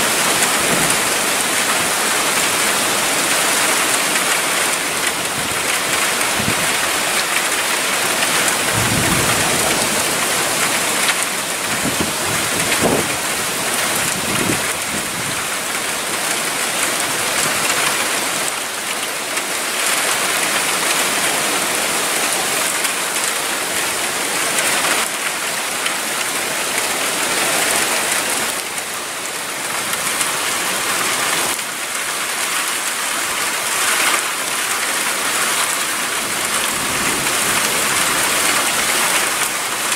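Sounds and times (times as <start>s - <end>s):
heavy rain pouring: 0.0s - 39.9s
low rumbles of thunder: 8.6s - 10.3s.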